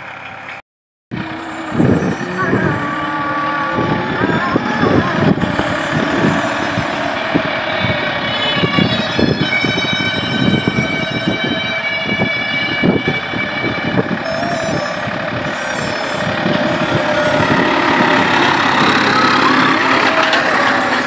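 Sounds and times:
tractor diesel engine under load: 0.0s - 21.0s
cultivator rattling clatter: 15.2s - 21.0s.

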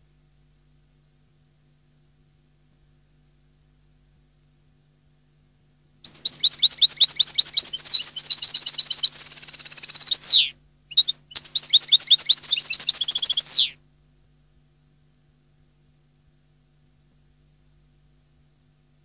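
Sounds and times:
goldfinch twittering song: 6.1s - 13.7s.

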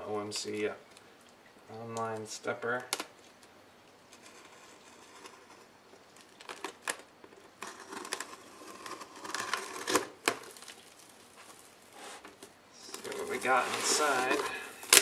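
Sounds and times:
packing tape peeled off cardboard: 4.1s - 15.0s.

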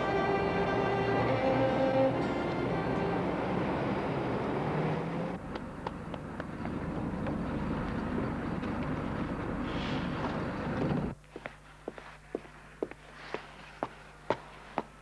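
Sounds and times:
music: 0.0s - 3.6s
transit vehicle rumble: 0.0s - 11.2s.

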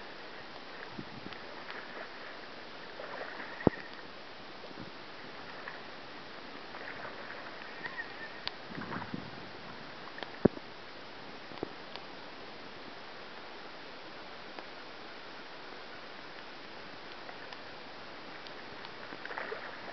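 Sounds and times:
river water hissing: 0.0s - 19.9s
wind: 0.0s - 19.9s
faint ticks: 0.4s - 5.8s, 6.5s - 9.1s, 10.0s - 10.7s, 11.4s - 12.4s, 14.2s - 19.9s.

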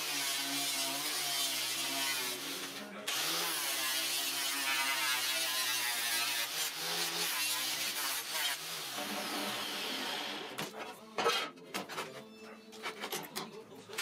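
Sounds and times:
angle grinder grinding steel: 0.0s - 10.6s.

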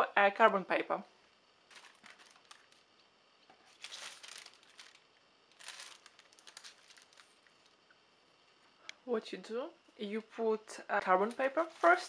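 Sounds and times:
paper rustling and crinkling: 1.7s - 2.9s, 3.5s - 7.6s, 11.2s - 12.0s.

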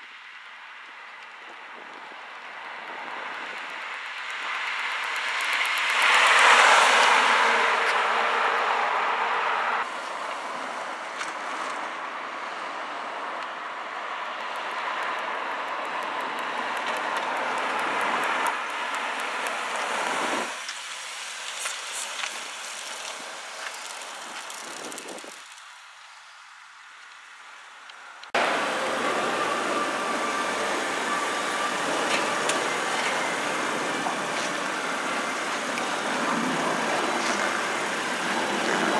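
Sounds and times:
tyres hissing on pavement: 16.6s - 27.6s, 28.3s - 38.9s.

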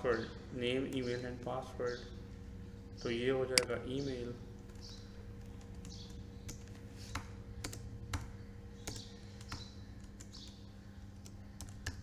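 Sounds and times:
faint electrical hum: 0.0s - 12.0s
keyboard and mouse clicks: 11.2s - 12.0s.

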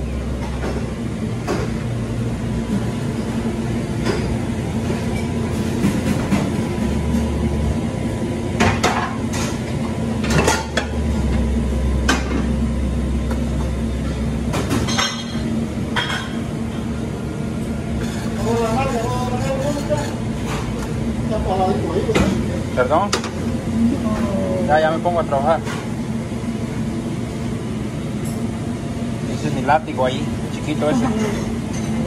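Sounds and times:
low hum of equipment: 0.0s - 32.0s
dishes and utensils clinking: 14.0s - 16.5s, 18.0s - 21.0s, 31.1s - 32.0s.

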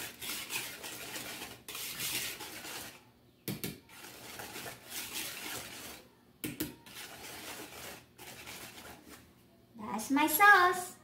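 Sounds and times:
whisk swishing in sauce: 0.0s - 3.1s, 3.8s - 6.2s, 6.8s - 9.3s.

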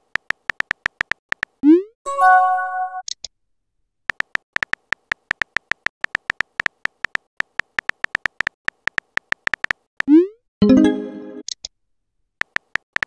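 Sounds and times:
phone keyboard typing clicks: 0.0s - 1.6s, 4.1s - 10.1s, 12.4s - 13.0s.

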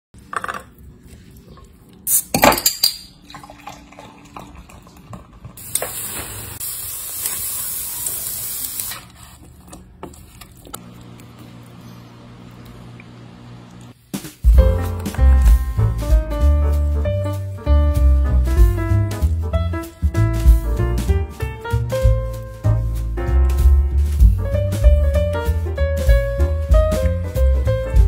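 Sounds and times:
meat sizzling on grill: 5.6s - 9.0s.

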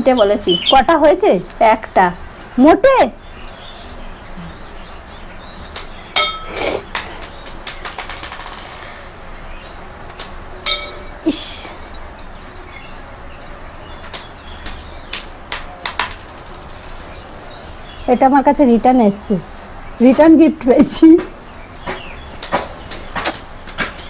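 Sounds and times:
steel bowl ringing: 6.2s - 6.6s, 10.6s - 11.2s
glass marbles clicking and clinking: 6.2s - 6.7s, 10.7s - 11.2s.

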